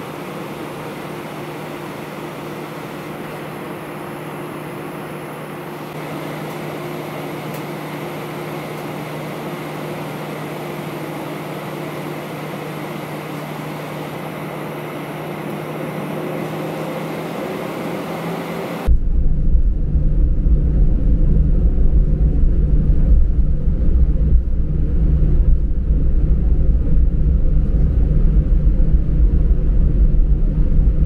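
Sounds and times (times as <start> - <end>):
jet engines idling: 0.0 - 19.0
air conditioning: 0.0 - 31.0
low steady drone: 0.0 - 31.0.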